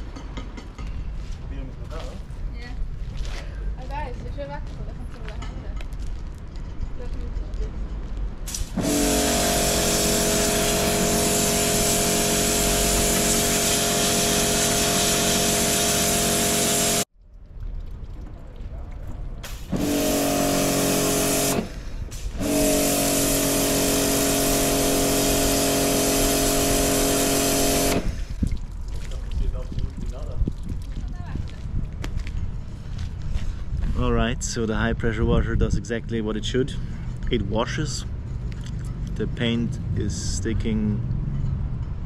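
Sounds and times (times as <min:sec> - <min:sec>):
high-pressure water jet hissing on metal: 0:08.5 - 0:17.1, 0:19.4 - 0:28.4
pressure washer pump humming: 0:08.5 - 0:17.1, 0:19.4 - 0:28.4.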